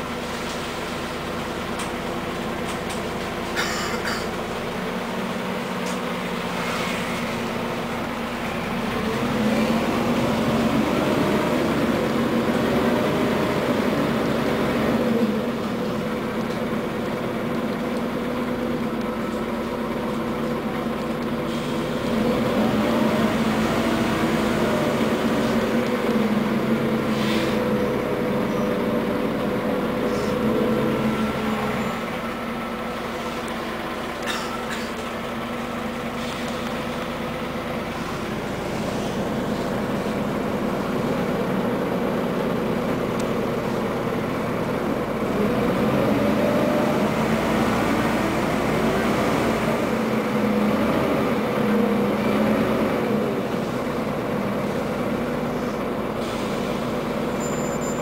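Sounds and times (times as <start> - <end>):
bus engine: 0.0 - 58.0.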